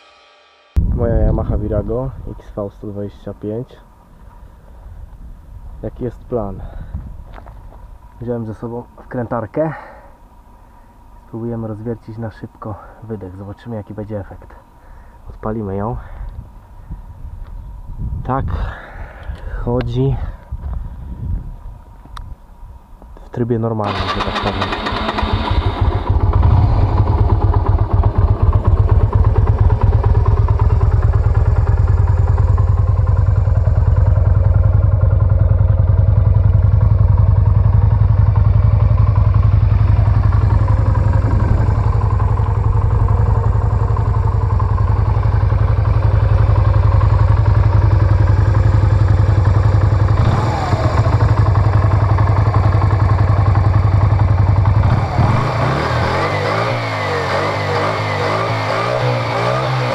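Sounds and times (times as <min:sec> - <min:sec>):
motorcycle engine idling: 0:23.9 - 0:59.9.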